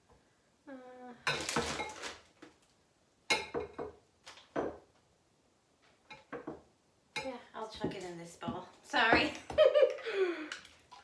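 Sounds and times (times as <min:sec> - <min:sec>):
dishes clattering on counter: 0:03.3 - 0:04.8, 0:06.1 - 0:06.6.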